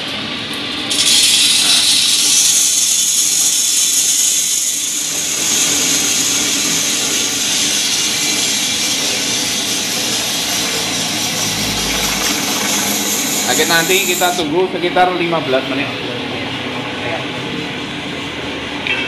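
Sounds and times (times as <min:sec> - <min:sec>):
coffee roaster running: 0:00.0 - 0:19.0
coffee beans rattling into drum: 0:00.8 - 0:14.4.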